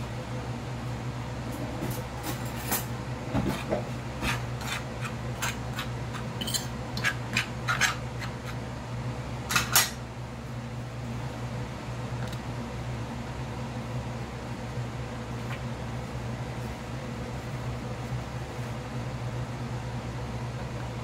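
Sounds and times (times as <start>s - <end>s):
fork scraping a ceramic plate: 3.4s - 8.6s.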